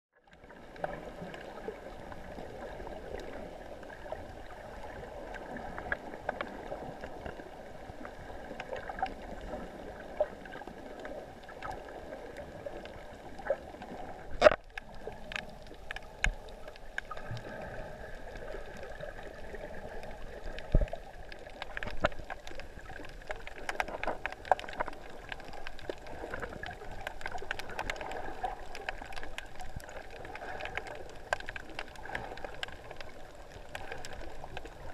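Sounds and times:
small clicks and knocks: 14.3s - 17.5s, 20.5s - 30.1s.

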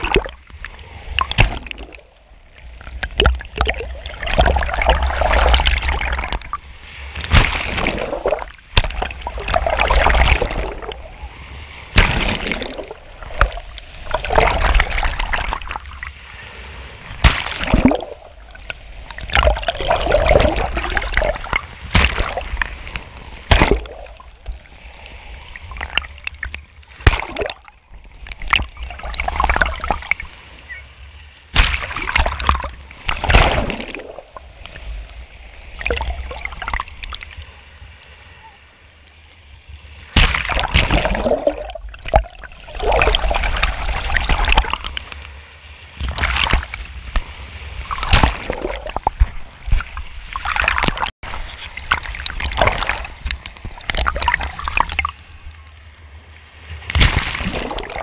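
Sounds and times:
water slaps: 0.0s - 0.4s, 1.1s - 2.1s, 2.9s - 6.6s, 7.2s - 11.1s, 11.8s - 16.1s, 17.1s - 30.4s, 31.5s - 34.9s, 40.1s - 45.3s, 46.0s - 55.1s, 56.8s - 58.0s
waves sloshing and splashing: 0.0s - 58.0s.

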